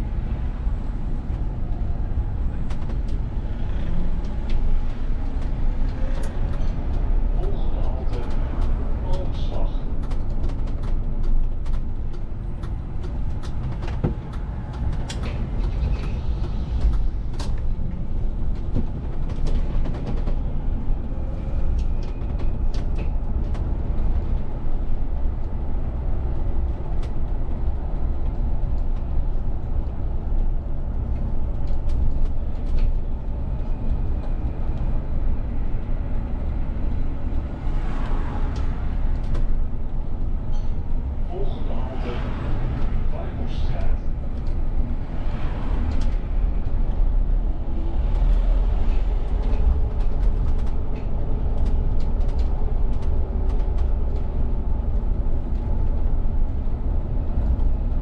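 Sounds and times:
bus engine and tyres rumbling: 0.0 - 58.0.

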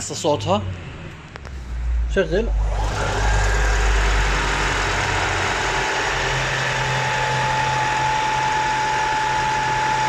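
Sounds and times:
car engine idling: 1.4 - 10.0.

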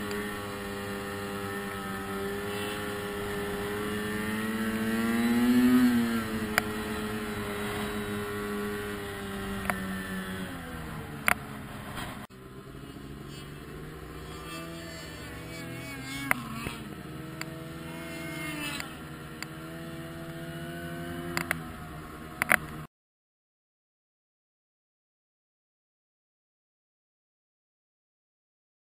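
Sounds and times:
snowmobile engine running: 0.0 - 22.9.

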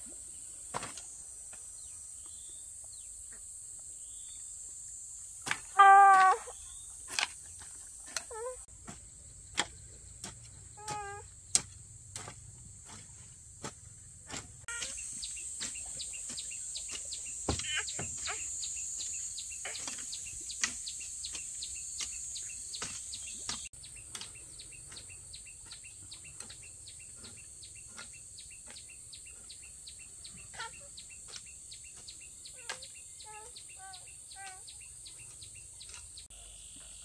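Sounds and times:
insect drone: 0.0 - 26.0
hoe chopping into soil: 0.7 - 1.1, 7.1 - 18.4, 19.1 - 28.9
bird chirps: 14.7 - 37.0.

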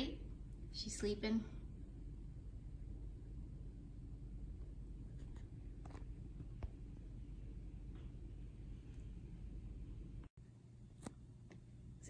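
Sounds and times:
steady low rumble: 0.0 - 10.8.

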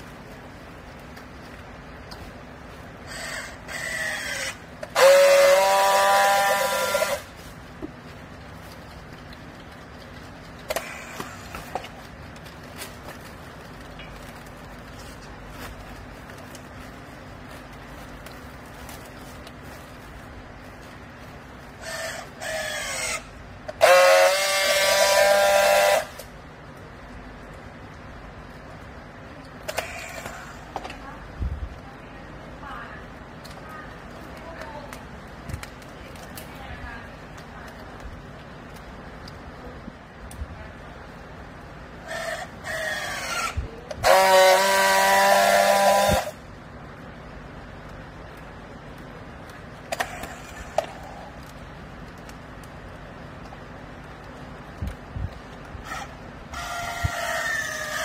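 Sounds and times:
loud steady buzz: 0.0 - 8.0, 10.5 - 26.6, 41.8 - 58.0
strapping tool motor whine: 3.1 - 7.3, 21.8 - 26.3, 42.1 - 46.4
strapping tool motor whirring: 3.1 - 7.3.

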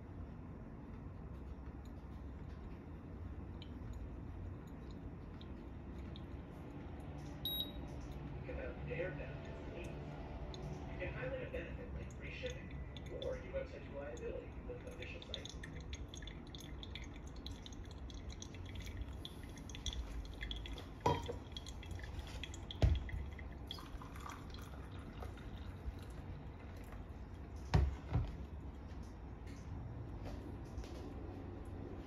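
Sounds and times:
coffee dripping: 1.4 - 8.4, 9.4 - 31.8
dishes knocking: 21.0 - 21.4.

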